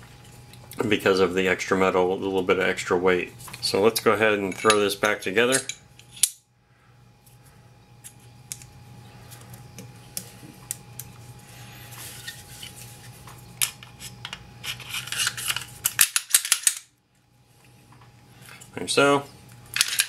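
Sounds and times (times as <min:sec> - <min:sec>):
pistol parts clicking and scraping: 0:04.5 - 0:06.4, 0:13.6 - 0:16.9, 0:19.7 - 0:20.0.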